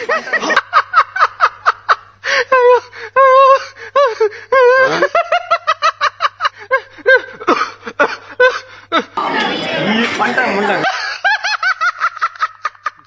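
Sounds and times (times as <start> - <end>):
man's wordless vocal outbursts: 9.2 - 10.9.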